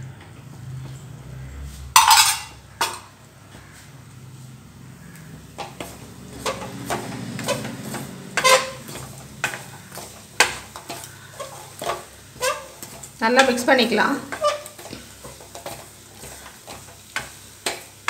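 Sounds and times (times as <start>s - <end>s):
wooden spatula scraping a metal pan: 5.0s - 18.0s.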